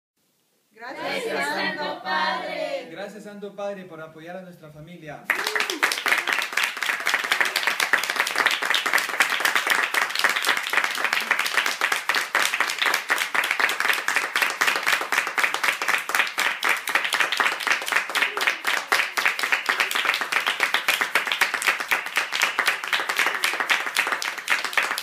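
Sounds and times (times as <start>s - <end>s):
people clapping: 5.3s - 25.0s.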